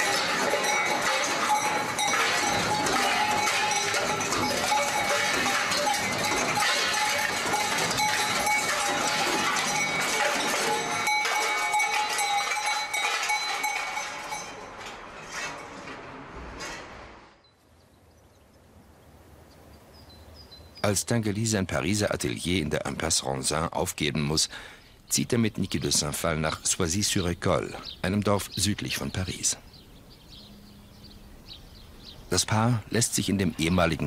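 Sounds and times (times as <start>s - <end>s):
bell-like ringing tones: 0.0s - 14.9s
clatter and jangle of metal: 0.0s - 16.9s.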